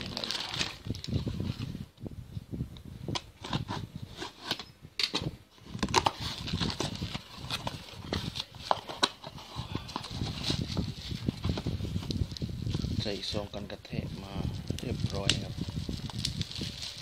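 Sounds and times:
plastic packaging crinkling: 0:00.0 - 0:01.2, 0:14.6 - 0:17.0
cardboard box being opened: 0:05.7 - 0:13.0.

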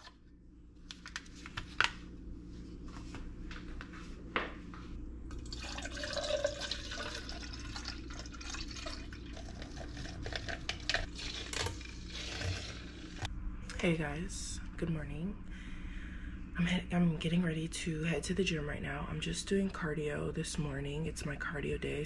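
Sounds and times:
packet clicks and rustles: 0:00.8 - 0:02.0
water pouring into a glass: 0:05.3 - 0:13.2.

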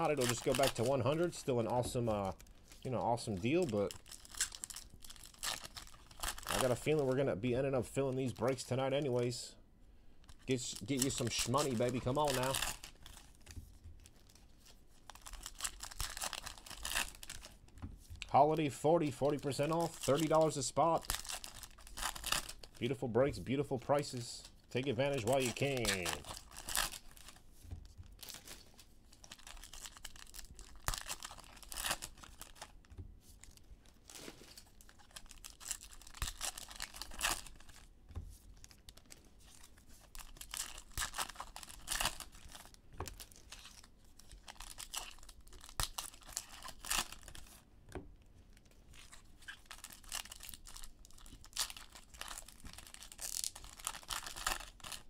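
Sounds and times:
foil wrappers tearing and crinkling: 0:00.0 - 0:07.1, 0:10.3 - 0:17.6, 0:19.4 - 0:23.0, 0:24.8 - 0:27.4, 0:28.1 - 0:32.8, 0:33.4 - 0:37.9, 0:38.6 - 0:47.6, 0:48.5 - 0:55.0.

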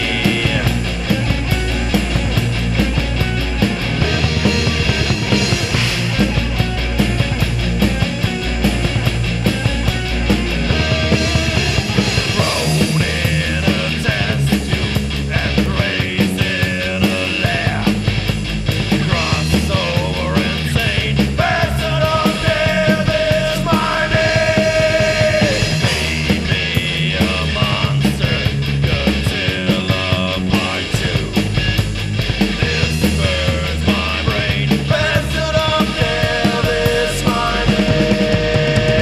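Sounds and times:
heavy metal band playing: 0:00.0 - 0:39.0.

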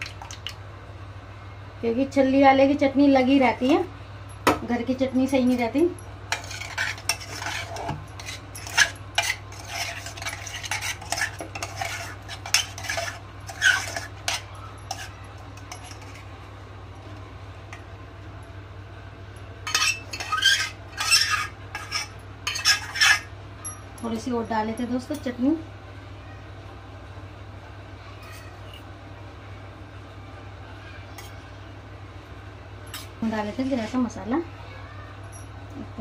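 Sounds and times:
metal spoon scraping pot: 0:05.4 - 0:16.3, 0:19.6 - 0:23.3.

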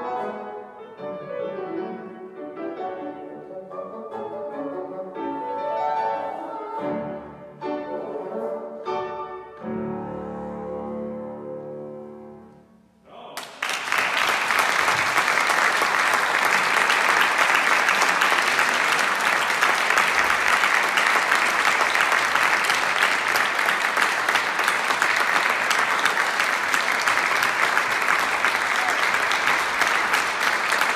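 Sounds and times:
piano and bassoon note: 0:00.0 - 0:12.8
audience applause: 0:13.4 - 0:30.9.

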